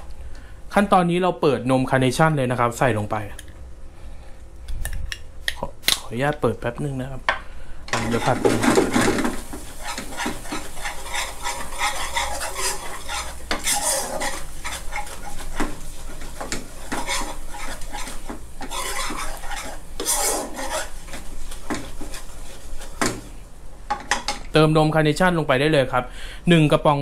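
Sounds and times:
sauce sizzling softly: 7.6s - 23.9s
metal ladle scraping frying pan: 7.9s - 23.3s.

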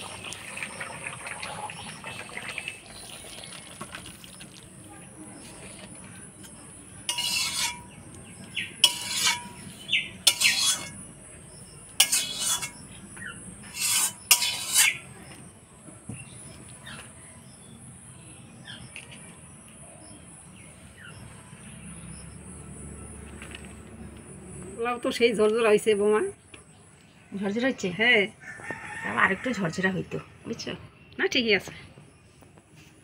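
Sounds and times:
spoon scraping a pan: 5.4s - 8.1s, 8.7s - 11.0s, 12.0s - 12.9s, 13.6s - 15.1s.

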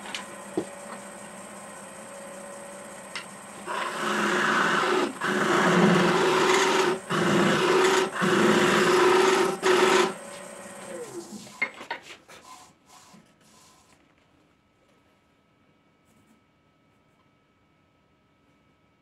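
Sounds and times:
lathe motor hum: 0.0s - 11.6s
lathe tool scraping wood: 0.0s - 11.6s.

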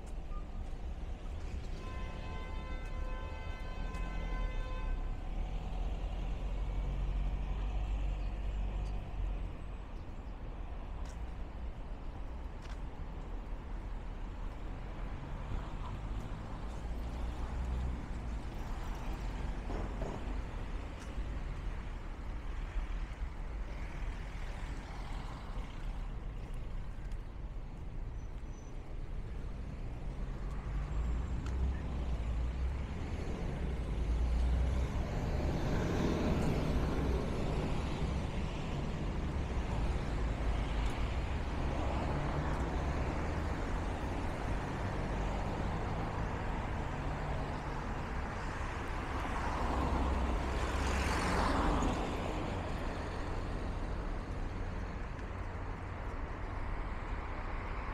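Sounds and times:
passing cars: 0.0s - 57.9s
heavy vehicles passing: 14.7s - 28.0s, 28.9s - 57.9s.

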